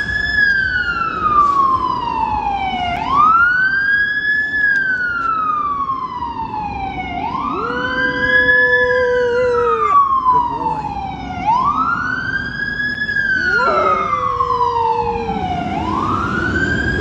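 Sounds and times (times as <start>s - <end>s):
emergency siren wailing: 0.0s - 17.0s
dog howling: 7.4s - 11.0s, 13.4s - 15.0s.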